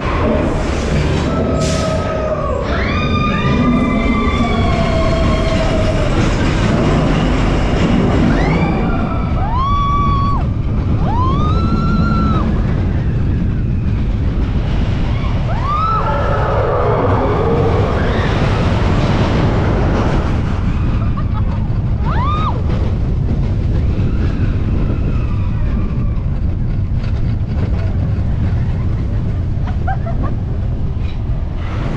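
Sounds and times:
roller coaster rumble: 0:00.0 - 0:31.9
riders screaming: 0:01.2 - 0:06.7, 0:08.2 - 0:13.9, 0:15.0 - 0:19.0.

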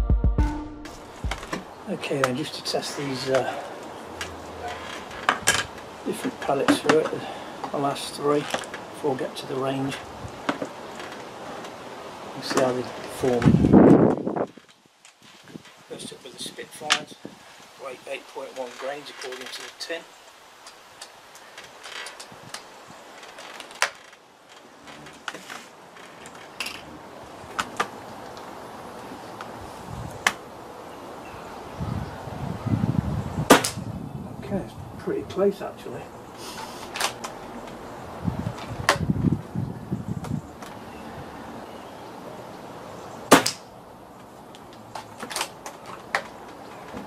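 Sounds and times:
air rifle shot: 0:33.5 - 0:33.8, 0:43.3 - 0:43.6.

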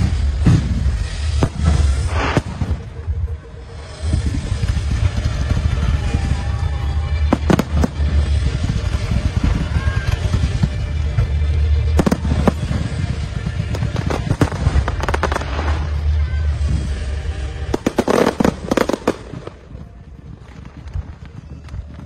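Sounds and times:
fireworks bangs: 0:00.0 - 0:22.0
fireworks crackling: 0:00.0 - 0:22.0
low rumble: 0:00.0 - 0:22.0.

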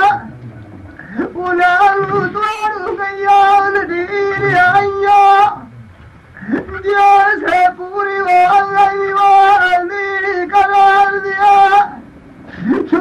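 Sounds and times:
man singing folk ballad: 0:01.0 - 0:05.7, 0:06.4 - 0:12.0.

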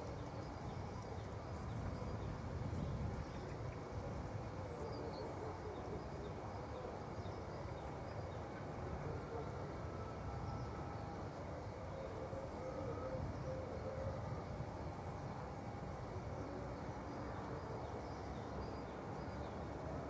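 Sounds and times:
wind buffeting microphone: 0:01.5 - 0:04.5.

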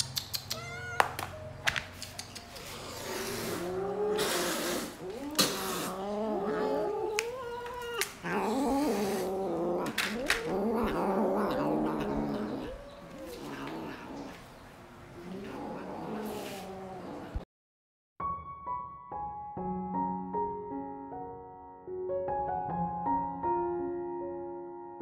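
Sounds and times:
cats yowling and growling: 0:00.3 - 0:01.3, 0:02.6 - 0:17.4.

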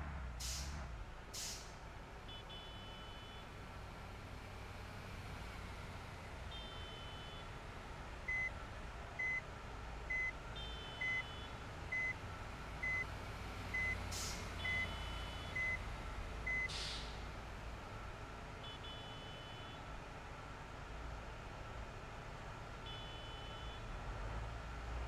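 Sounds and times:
short hisses: 0:16.7 - 0:17.2.

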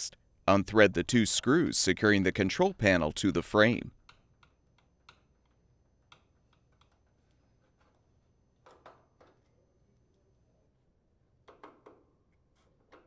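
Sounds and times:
screwdriver clicks and ticks: 0:04.0 - 0:07.0.

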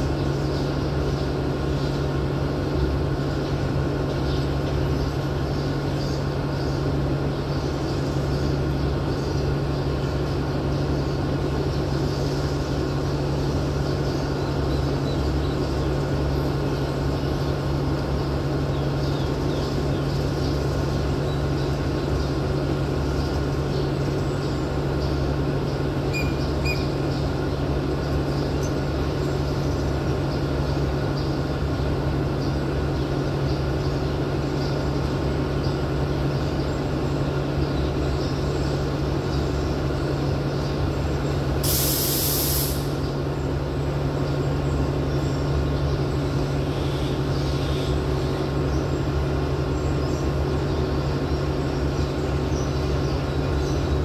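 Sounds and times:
diesel locomotive engine drone: 0:00.0 - 0:54.0
air hiss: 0:41.6 - 0:43.0.

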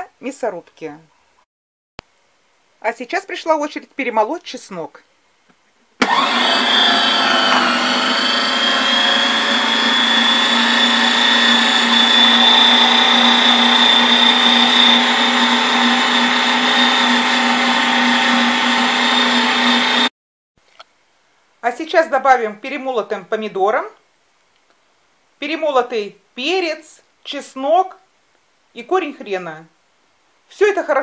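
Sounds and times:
electric meat grinder motor whine: 0:06.0 - 0:20.1.

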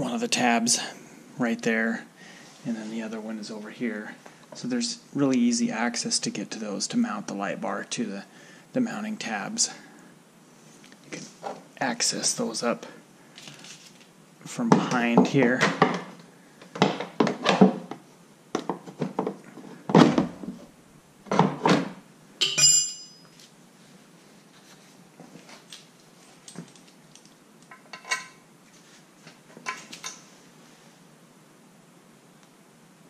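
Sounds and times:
metal hand tools clunking and clinking: 0:22.4 - 0:23.2.

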